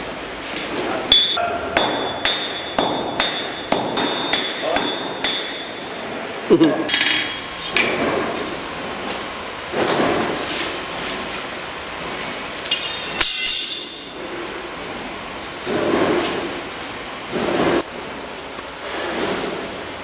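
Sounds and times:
hammer striking steel on anvil: 1.1 - 5.8, 12.8 - 14.2.

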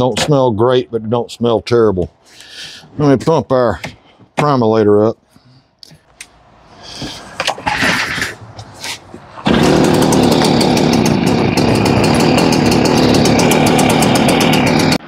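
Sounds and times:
small petrol engine running: 9.4 - 15.0.

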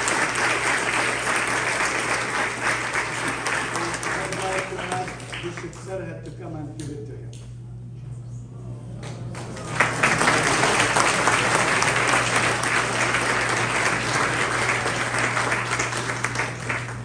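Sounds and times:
congregation applauding: 0.0 - 6.2, 9.2 - 17.0.

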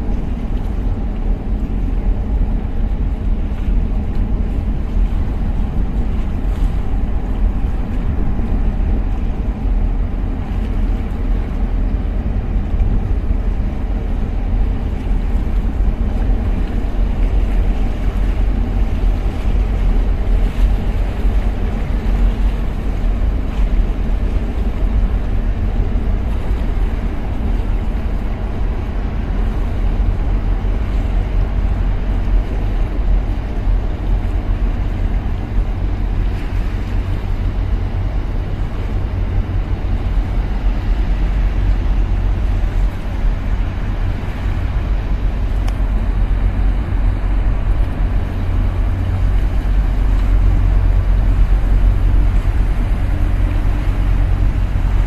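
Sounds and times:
boat engine rumble: 0.0 - 55.0
wind buffeting microphone: 0.0 - 55.0.

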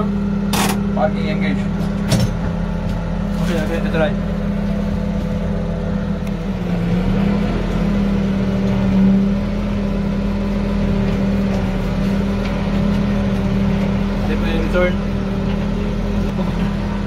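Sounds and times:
tractor diesel engine running: 0.0 - 17.0.

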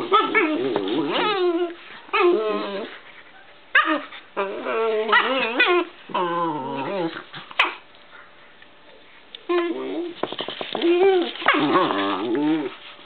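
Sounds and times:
dog whining and yelping: 0.0 - 7.8.

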